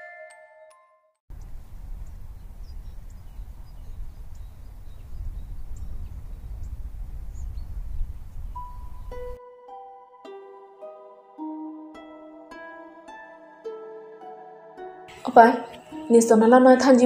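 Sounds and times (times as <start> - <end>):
steady low rumble: 1.3 - 9.4
bird chirps: 1.4 - 9.4.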